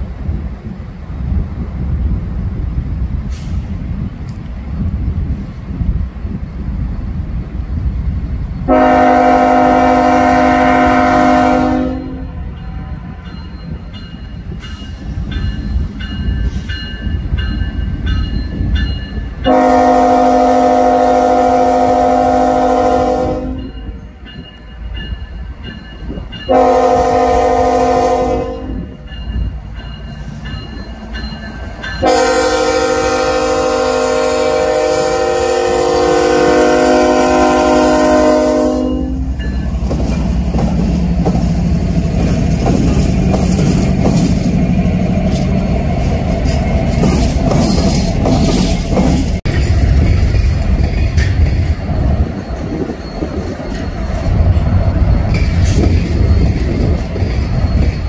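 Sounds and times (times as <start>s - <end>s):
passing train rumble: 0.0s - 58.0s
locomotive air horn blasts: 8.7s - 13.2s, 19.5s - 23.8s, 26.5s - 29.0s, 32.0s - 39.4s.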